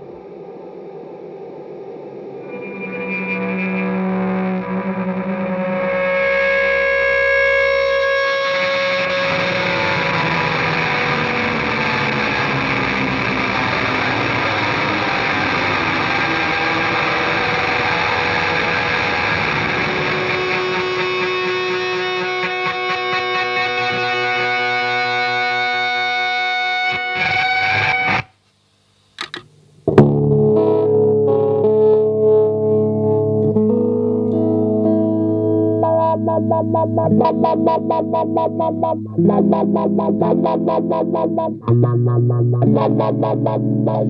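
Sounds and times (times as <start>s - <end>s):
fuzz distorted electric guitar: 0.0s - 28.4s, 29.2s - 44.0s
pulsing wobble: 35.7s - 44.0s.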